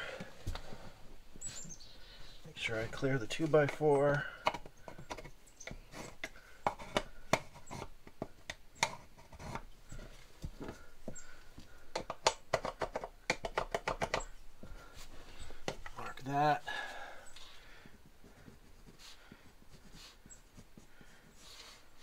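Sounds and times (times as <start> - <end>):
plastic box and pencil tapping drywall: 3.4 - 9.7, 11.1 - 14.8.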